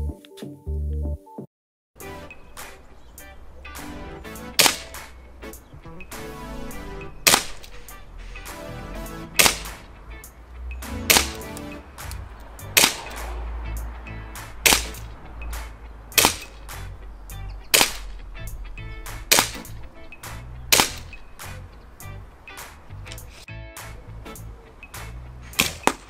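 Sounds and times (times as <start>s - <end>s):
airsoft pistol shots: 4.6s - 5.2s, 7.2s - 7.8s, 9.3s - 9.9s, 11.0s - 11.7s, 12.7s - 13.4s, 14.6s - 15.1s, 16.2s - 16.6s, 17.7s - 18.1s, 19.3s - 19.7s, 20.7s - 21.2s, 25.6s - 26.0s.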